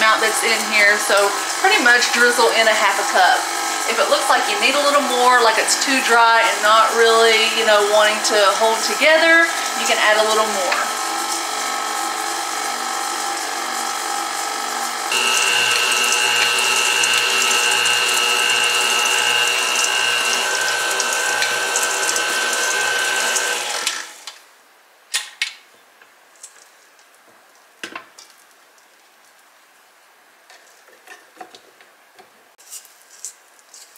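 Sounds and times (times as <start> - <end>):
stand mixer whisking: 0.0 - 24.3.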